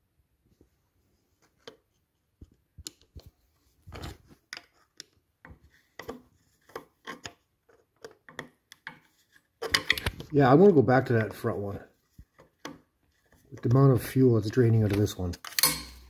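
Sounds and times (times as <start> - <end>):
screwdriver clicking and scraping: 3.9 - 10.3, 14.8 - 16.0.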